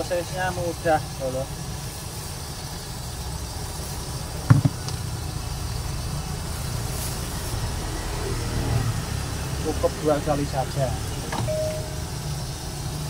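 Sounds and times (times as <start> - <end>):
gas burner roaring: 0.0 - 13.0
sharp knock: 4.5 - 4.8.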